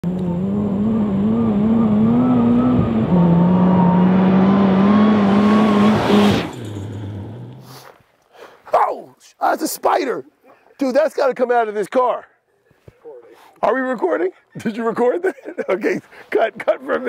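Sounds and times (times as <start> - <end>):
car engine revving high: 0.0 - 7.6
gravel hissing: 5.8 - 8.0.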